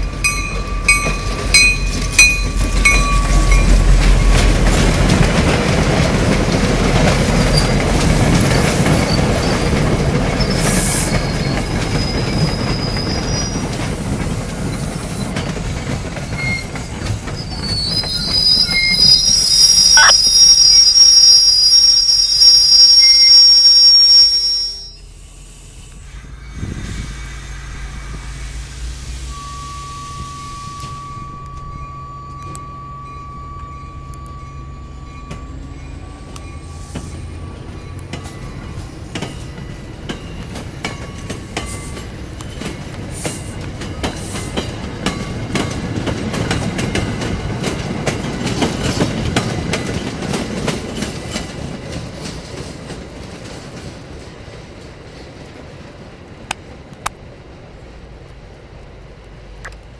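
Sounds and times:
train wheels clicking over rail joints: 0.0 - 19.7, 35.1 - 57.4
train coaches rolling past: 0.0 - 59.9
thin high-pitched ring: 0.2 - 3.8, 20.0 - 20.2.

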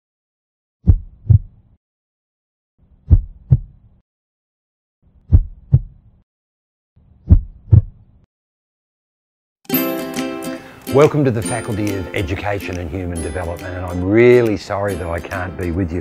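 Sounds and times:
heartbeat double thumps: 0.8 - 1.6, 3.0 - 3.9, 5.3 - 6.0, 7.2 - 8.0.

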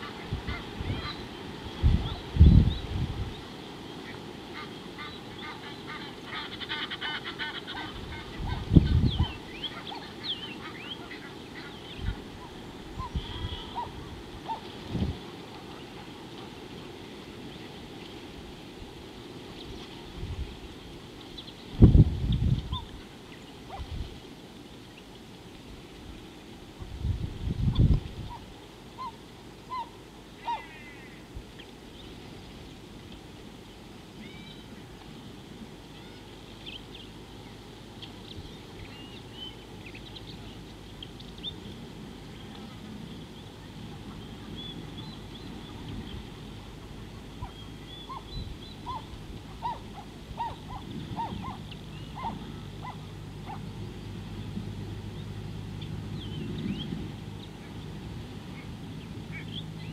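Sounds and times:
geese calling: 4.0 - 14.7, 28.3 - 31.3, 46.6 - 53.7
small birds chirping: 35.8 - 41.8, 47.2 - 54.4.

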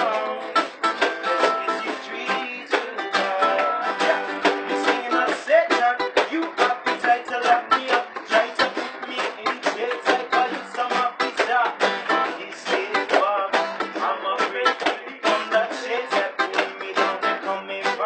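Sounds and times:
ukulele and guitars strumming: 0.0 - 18.0.

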